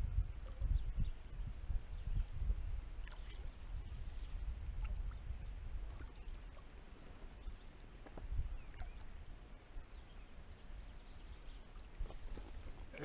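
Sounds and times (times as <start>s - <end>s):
wind rumble on microphone: 0.0s - 13.0s
bird chirp: 0.4s - 9.2s, 9.8s - 13.0s
water lapping against tube: 4.7s - 7.1s, 8.0s - 9.3s.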